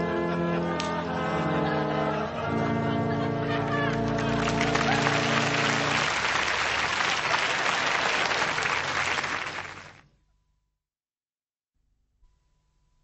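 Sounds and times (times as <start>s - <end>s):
held music chord: 0.0s - 6.7s
crowd applauding: 1.9s - 10.0s.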